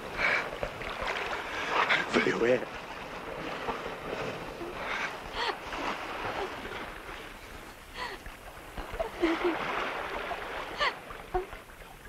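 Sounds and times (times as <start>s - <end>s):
ocean surf breaking: 8.5s - 11.4s.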